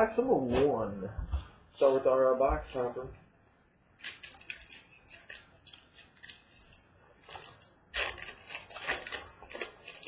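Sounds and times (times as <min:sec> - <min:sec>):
cardboard and wrapper crinkling: 0:04.0 - 0:10.0.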